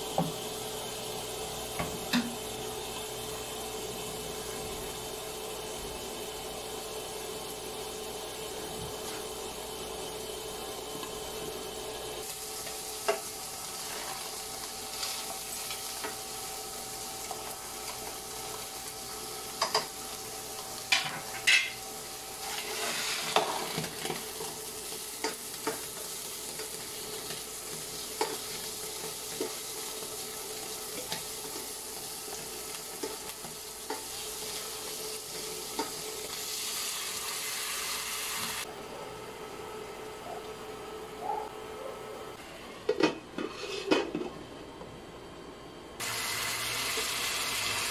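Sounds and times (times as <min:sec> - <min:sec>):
meat sizzling in a pan: 0:00.0 - 0:38.7, 0:46.0 - 0:47.9
spatula scraping a pan: 0:22.4 - 0:24.5, 0:43.4 - 0:44.1.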